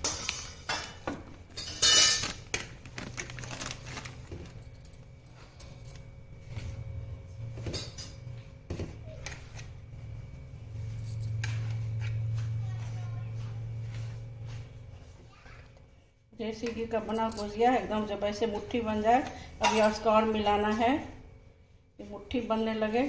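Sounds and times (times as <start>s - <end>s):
steady low hum: 0.0s - 23.0s
bangles clinking against metal: 1.5s - 2.4s, 17.1s - 17.7s
flour rustling: 2.2s - 4.6s.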